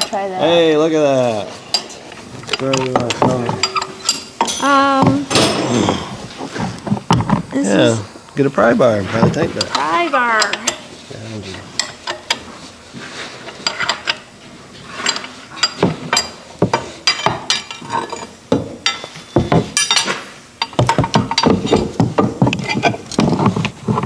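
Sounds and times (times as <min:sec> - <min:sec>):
metal tools knocking on metal: 0:02.5 - 0:06.2, 0:15.0 - 0:23.0.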